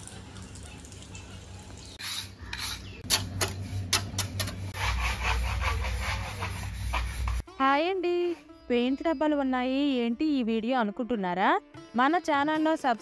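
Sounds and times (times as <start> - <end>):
rough rubbing and scraping: 2.0 - 7.4.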